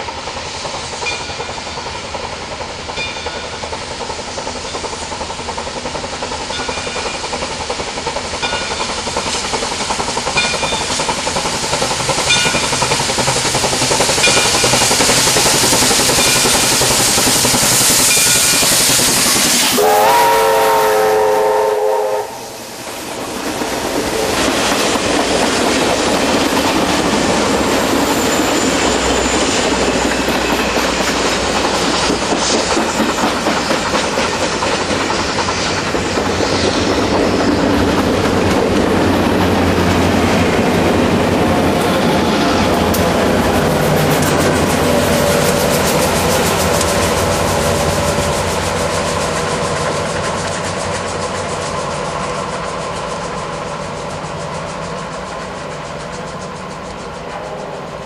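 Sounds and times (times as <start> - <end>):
passenger cars rolling on rails: 0.0 - 58.0
steam locomotive working: 0.0 - 58.0
steam whistle blast: 19.3 - 22.7.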